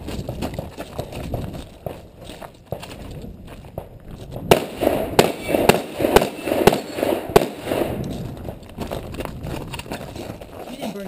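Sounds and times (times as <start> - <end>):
rifle shots with echo: 4.5 - 8.2.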